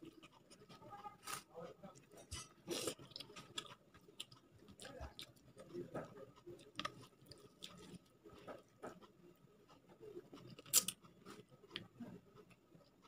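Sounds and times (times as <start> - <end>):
fingers mixing rice on a plate: 1.5 - 13.0
chewing with wet mouth clicks: 2.7 - 5.8, 6.6 - 9.8.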